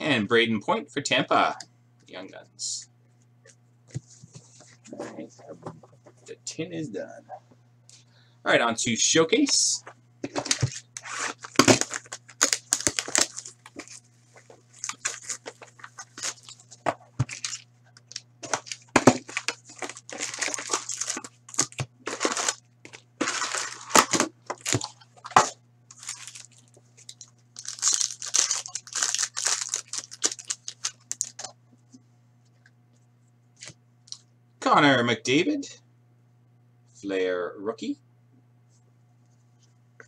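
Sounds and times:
foil card packs tearing and crinkling: 10.3s - 31.5s.

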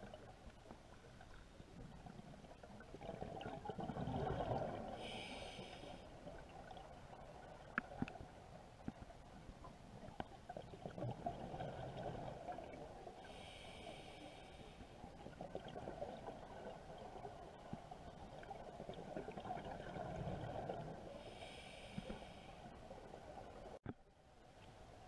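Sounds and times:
faint clicks: 7.6s - 8.2s.

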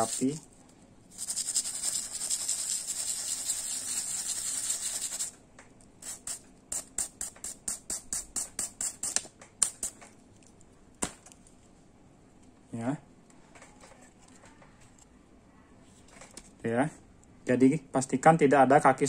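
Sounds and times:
brush scrubbing circuit board: 0.0s - 0.4s, 1.1s - 5.3s, 6.0s - 9.1s.

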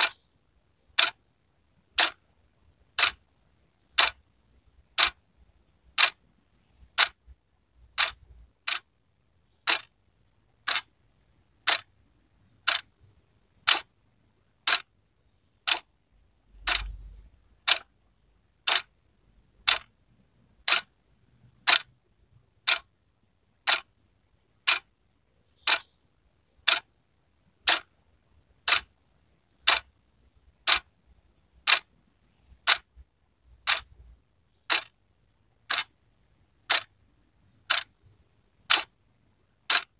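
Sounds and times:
wall clock ticking: 0.0s - 0.2s, 0.9s - 1.2s, 1.9s - 2.3s, 2.9s - 5.2s, 5.9s - 11.0s, 11.6s - 15.0s, 15.6s - 15.9s, 16.5s - 20.0s, 20.6s - 23.9s, 24.6s - 25.0s, 25.6s - 26.9s, 27.5s - 28.0s, 28.6s - 31.0s, 31.6s - 35.0s, 35.6s - 36.0s, 36.6s - 37.0s, 37.6s - 39.0s, 39.6s - 39.9s.

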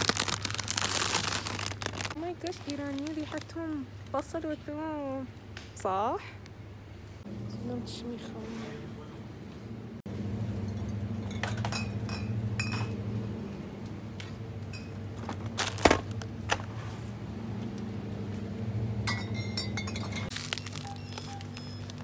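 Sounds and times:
steady low hum: 0.1s - 22.0s
glass bottles clinking: 19.0s - 20.8s.

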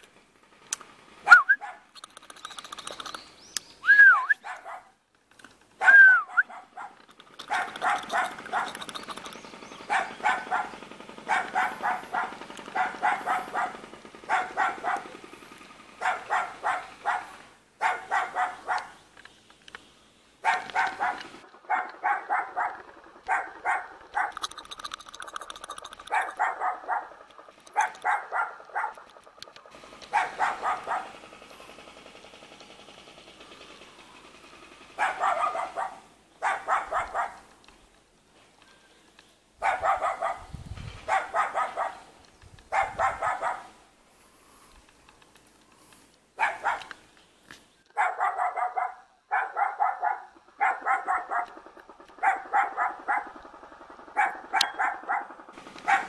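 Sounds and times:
small dog barking: 1.3s - 1.9s, 4.3s - 5.0s, 5.8s - 8.9s, 9.9s - 15.2s, 16.0s - 19.0s, 20.4s - 24.4s, 25.8s - 29.1s, 30.1s - 31.2s, 35.0s - 37.5s, 39.6s - 42.1s, 42.7s - 43.8s, 46.4s - 46.9s, 48.0s - 51.6s, 52.2s - 53.4s, 54.2s - 56.0s.

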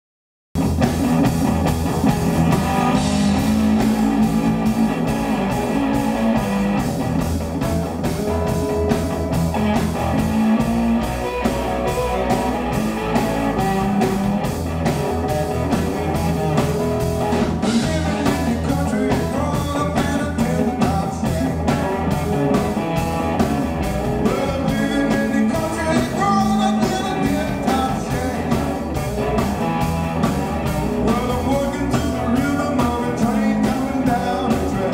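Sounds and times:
bass: 0.6s - 34.9s
electric guitar: 0.6s - 34.9s
steady drum beat: 0.6s - 34.9s
man singing: 17.6s - 22.0s, 24.2s - 28.9s, 30.9s - 34.9s.

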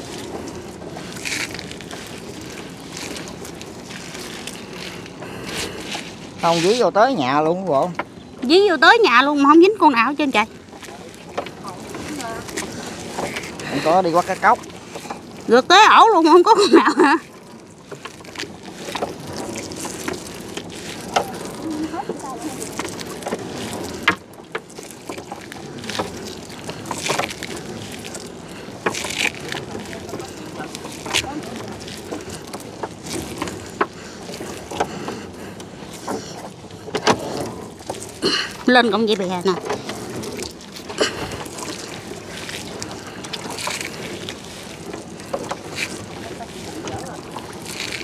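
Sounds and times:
water sloshing around hull: 0.0s - 48.0s
knocks in a boat: 36.0s - 37.7s
knocks on boat: 36.9s - 37.5s.

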